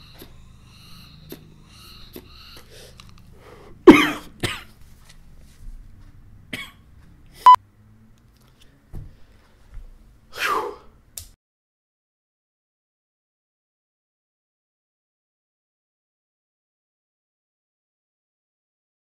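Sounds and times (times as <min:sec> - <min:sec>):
man coughing: 0:03.9 - 0:04.7, 0:06.6 - 0:06.8.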